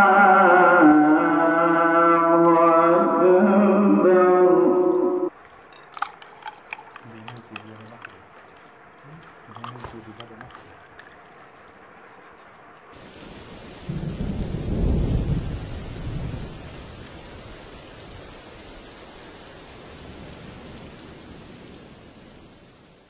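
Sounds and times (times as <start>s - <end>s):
rain hiss: 0.8s - 23.0s
thunder rolling: 13.0s - 22.8s.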